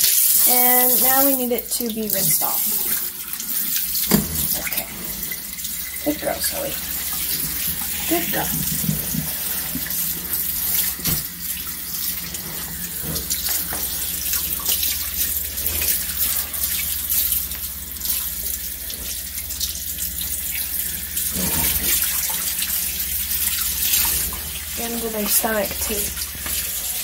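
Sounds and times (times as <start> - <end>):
faucet sprayer hissing: 0.0 - 27.0
water splashes: 0.0 - 27.0.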